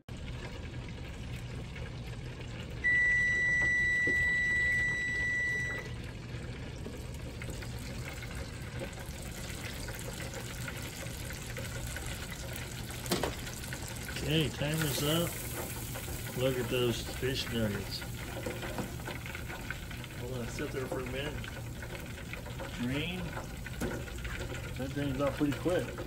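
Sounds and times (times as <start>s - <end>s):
hot oil sizzling: 0.1s - 26.0s
high timer beep: 2.9s - 5.9s.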